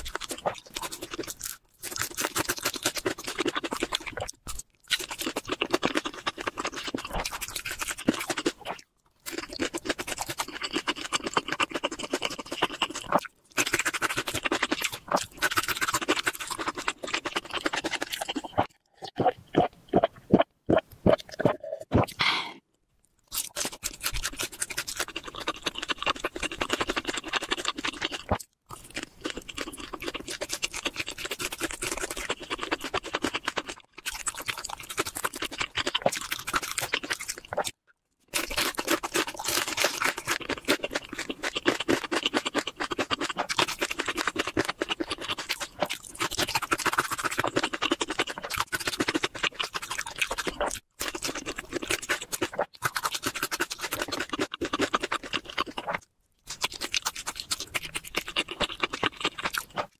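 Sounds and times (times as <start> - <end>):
crunching and chewing food: 0.0 - 22.2, 22.8 - 59.9
gulping a drink: 16.4 - 22.6.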